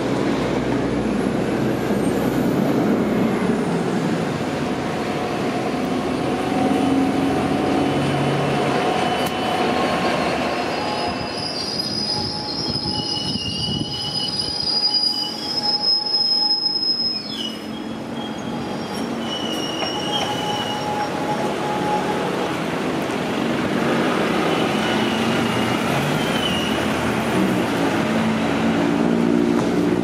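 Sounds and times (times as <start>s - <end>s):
train wheels rumbling: 0.0s - 30.0s
underground train approaching: 0.0s - 30.0s
train wheel flanges squealing: 5.8s - 22.9s, 24.2s - 27.2s.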